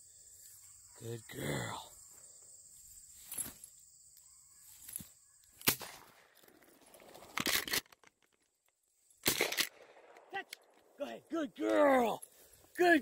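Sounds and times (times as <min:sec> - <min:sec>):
gunshot crack: 0:05.6 - 0:06.2, 0:09.2 - 0:10.4
cluster of clicks: 0:06.4 - 0:11.0.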